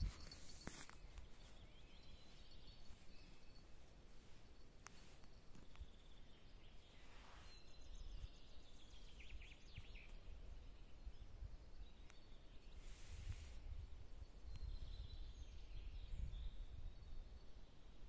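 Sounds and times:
small bird chirping: 0.0s - 18.0s.

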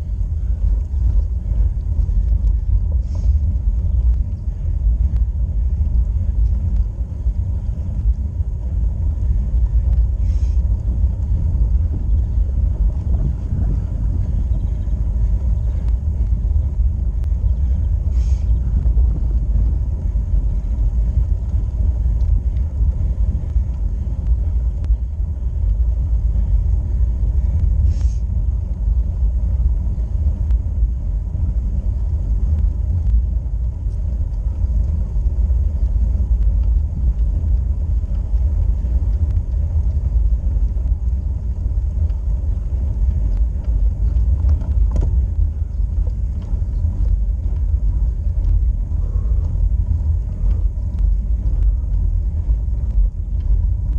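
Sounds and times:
road vibration and wind rumble: 0.0s - 53.9s
faint ticks: 3.7s - 8.8s, 14.6s - 26.5s, 31.7s - 53.9s.

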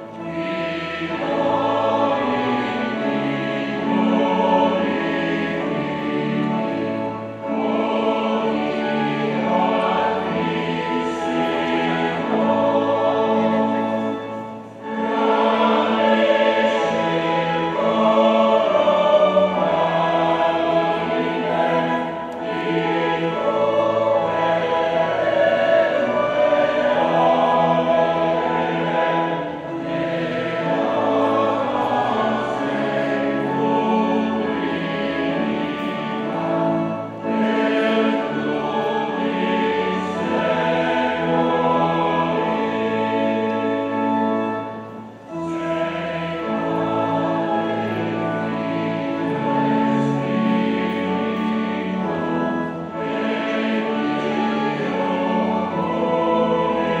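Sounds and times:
choir singing a hymn: 0.0s - 57.0s.

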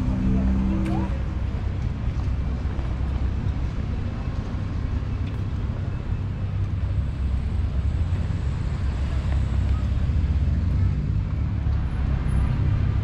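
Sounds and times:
rumble of passing cars: 0.0s - 13.0s.

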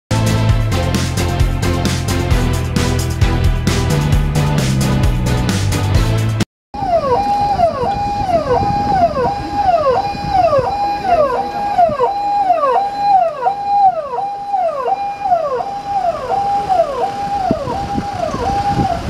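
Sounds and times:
electronic siren wailing: 6.8s - 19.0s
low rumble of vehicles: 6.8s - 19.0s.

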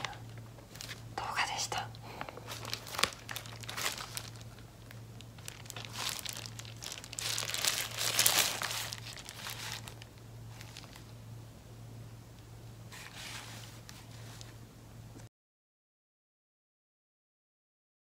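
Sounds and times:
sheet gloves crinkling: 0.0s - 1.1s, 2.1s - 11.1s, 12.9s - 14.6s.

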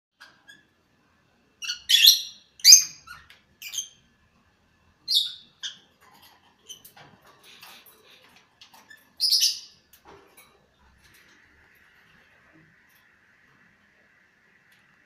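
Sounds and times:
lovebirds chirping: 1.6s - 4.1s, 5.0s - 5.9s, 8.9s - 9.9s.

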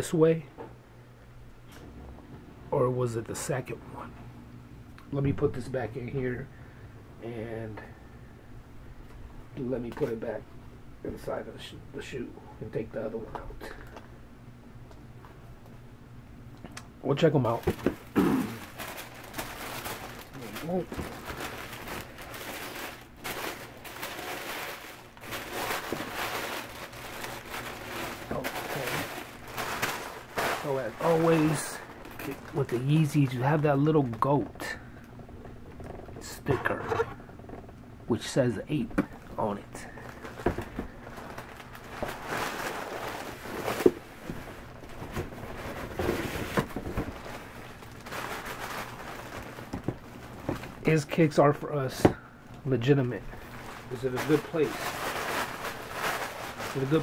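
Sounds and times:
wrapping paper rustling: 17.4s - 34.8s, 39.1s - 52.0s, 52.8s - 57.0s.

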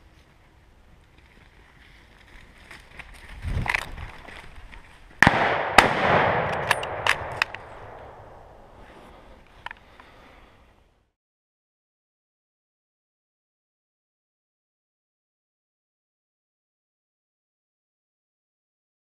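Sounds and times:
rifle shots echoing: 5.2s - 8.7s.

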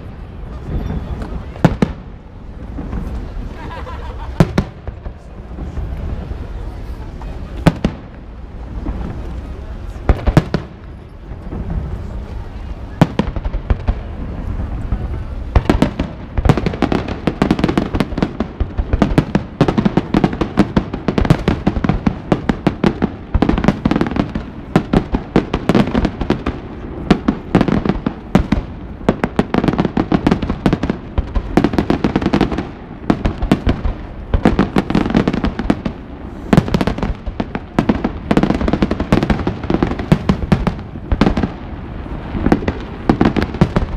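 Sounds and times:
fireworks bursting and crackling: 0.0s - 43.9s.

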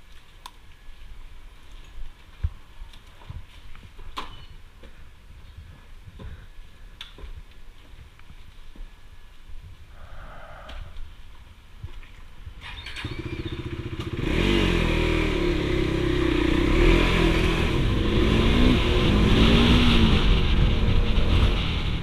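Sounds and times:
motorcycle engine revving: 12.6s - 22.0s.

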